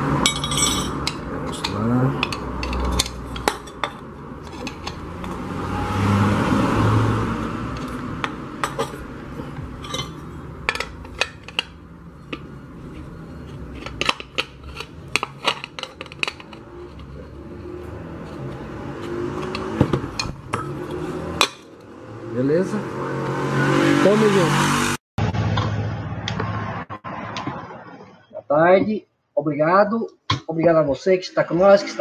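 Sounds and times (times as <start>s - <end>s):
wrenches clinking on metal lid: 0.2s - 5.0s, 8.6s - 11.8s
scraping and handling noise: 0.2s - 5.5s, 7.7s - 21.8s.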